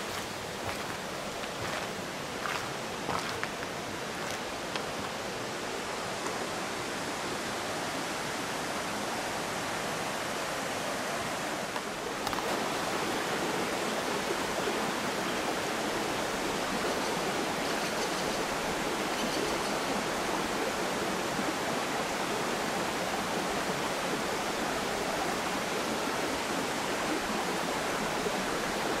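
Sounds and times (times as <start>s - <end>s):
river water rushing: 0.0s - 29.0s.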